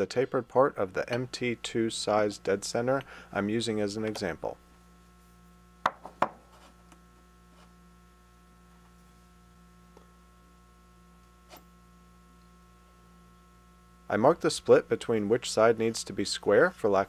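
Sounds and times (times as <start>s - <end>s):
mains hum: 0.0s - 17.0s
metal knocks on wooden workbench: 5.8s - 6.4s.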